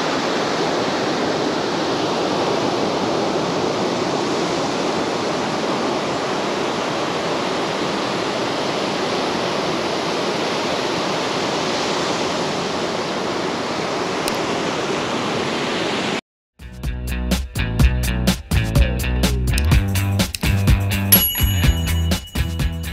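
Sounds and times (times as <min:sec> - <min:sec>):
water rushing: 0:00.0 - 0:16.2
music: 0:16.6 - 0:22.9.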